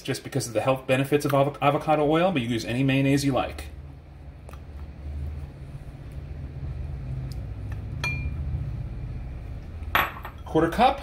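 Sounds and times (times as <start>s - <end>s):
low steady hum: 0.0s - 11.0s
glass clinking on glass: 8.0s - 8.4s, 10.0s - 10.5s.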